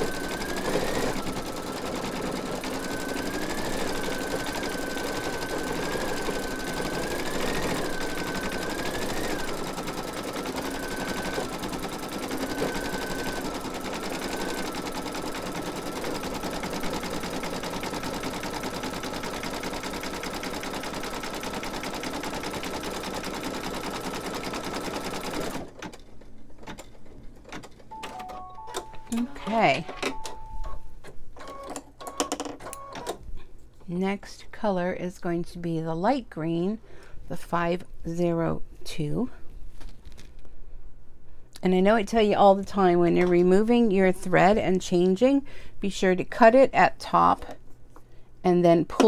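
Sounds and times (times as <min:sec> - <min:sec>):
embroidery machine whirring: 0:00.0 - 0:25.7.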